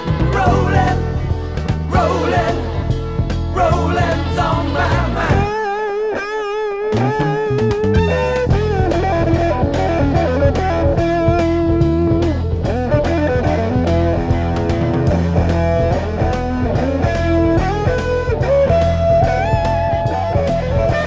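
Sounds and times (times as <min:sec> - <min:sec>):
steady drum beat: 0:00.0 - 0:05.6
bass: 0:00.0 - 0:21.0.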